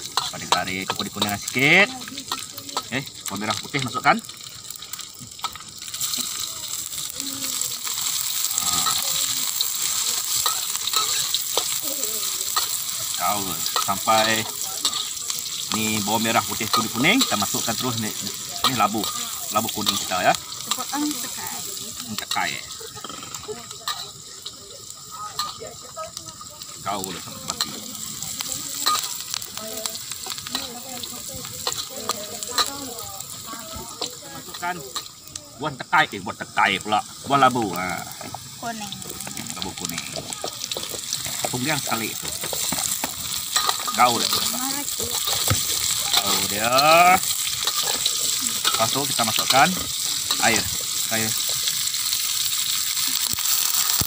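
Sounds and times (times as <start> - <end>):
metal spatula scraping a pan: 0.0 - 1.4, 8.0 - 11.8, 28.8 - 29.4, 42.2 - 46.5, 47.2 - 50.8
metal spatula scraping wok: 0.0 - 1.5, 7.8 - 24.6, 27.5 - 29.4, 30.0 - 35.1, 42.1 - 46.5, 47.1 - 52.5
food sizzling in hot oil: 0.0 - 54.0.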